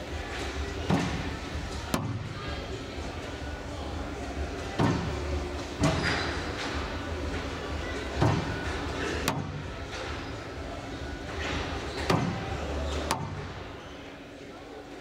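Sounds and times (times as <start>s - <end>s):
squash ball smacks in hall: 0.8s - 2.4s, 4.8s - 5.2s, 8.2s - 8.6s, 9.2s - 9.6s, 12.0s - 12.4s, 13.0s - 13.5s.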